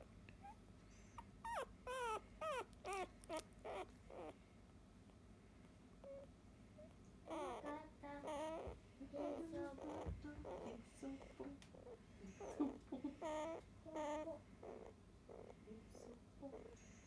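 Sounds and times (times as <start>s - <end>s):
puppy whimpering: 0.4s - 4.4s, 7.3s - 10.8s, 11.8s - 15.6s.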